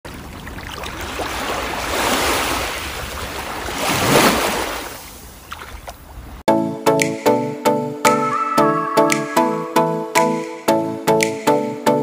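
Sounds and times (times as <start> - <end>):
sea waves washing in: 0.1 - 6.4.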